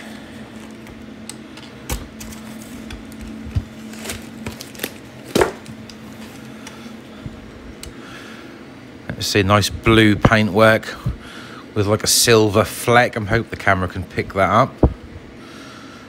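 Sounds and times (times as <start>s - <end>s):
polystyrene foam being handled: 2.2s - 6.5s.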